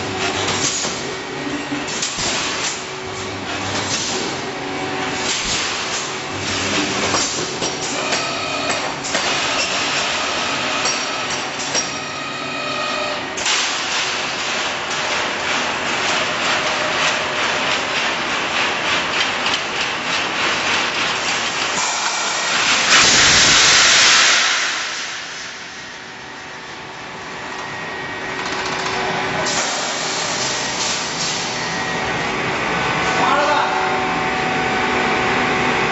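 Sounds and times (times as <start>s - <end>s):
welding machine clattering: 13.4s - 25.2s
welding machine mechanical din: 20.8s - 25.2s.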